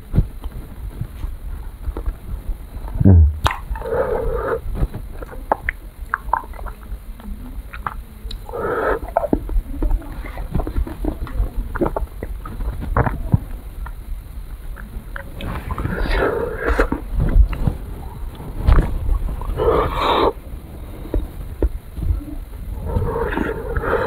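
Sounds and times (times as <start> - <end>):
wet sucking sounds: 7.8 - 9.4, 14.8 - 17.7, 18.3 - 20.4, 22.7 - 24.0.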